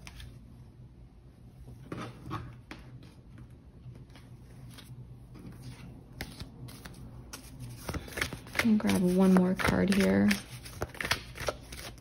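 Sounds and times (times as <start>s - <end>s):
low steady hum: 0.0s - 12.0s
cards tapping and rustling: 4.0s - 12.0s.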